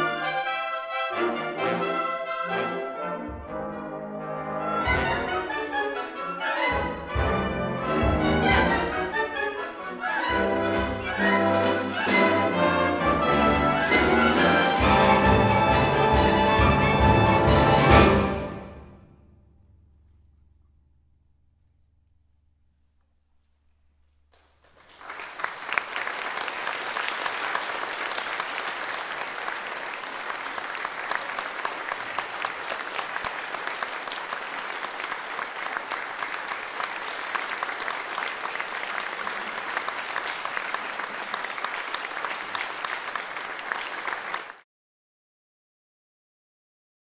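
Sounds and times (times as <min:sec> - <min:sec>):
audience applause: 0:24.4 - 0:44.6.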